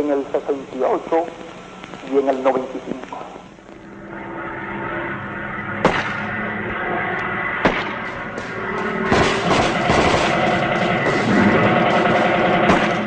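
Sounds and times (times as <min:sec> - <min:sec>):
gunshots: 0:05.8 - 0:06.4, 0:07.6 - 0:13.0
rapid burst of gunfire: 0:09.0 - 0:13.0.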